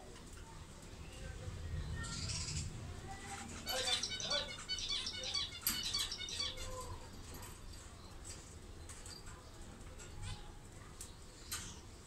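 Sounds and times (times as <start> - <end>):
budgerigars chattering: 3.7 - 6.7.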